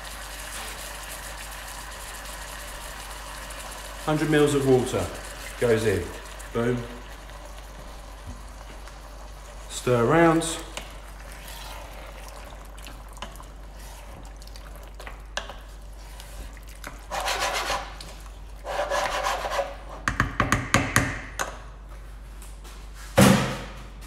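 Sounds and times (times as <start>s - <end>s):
spoon stirring thick sauce in pan: 10.6s - 19.2s
loud thud: 23.2s - 23.8s.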